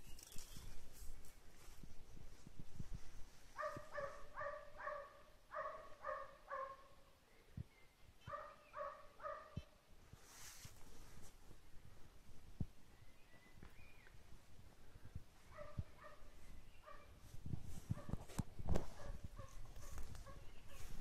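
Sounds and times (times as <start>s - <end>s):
faint dog yelping barks: 3.6s - 6.9s, 8.2s - 9.7s.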